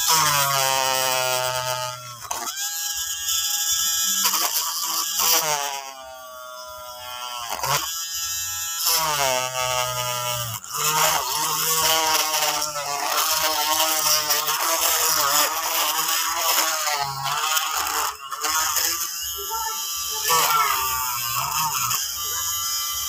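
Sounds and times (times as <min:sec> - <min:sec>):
electric drill whining through plastic: 0:00.0 - 0:23.0.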